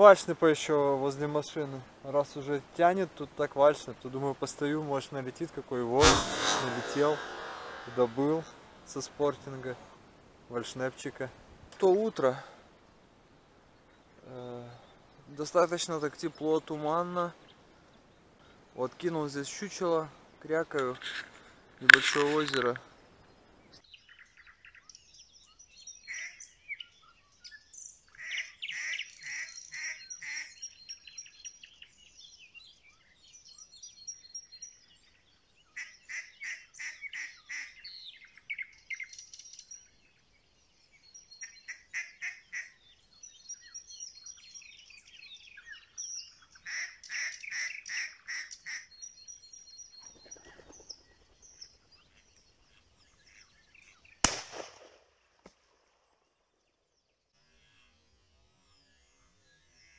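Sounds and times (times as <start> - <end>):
songbirds chirping and trilling: 10.5 - 54.4, 55.9 - 59.9.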